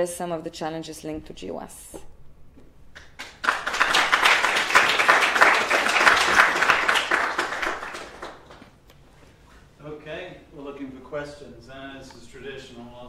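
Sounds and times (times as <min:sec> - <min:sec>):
audience applauding: 0:03.0 - 0:08.7.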